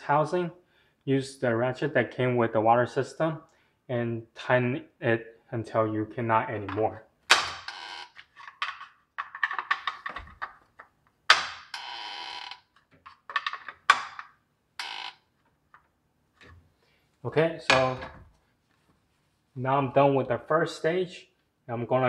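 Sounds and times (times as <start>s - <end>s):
sharp plastic knocks: 6.6s - 7.8s, 8.5s - 11.7s, 12.9s - 14.4s.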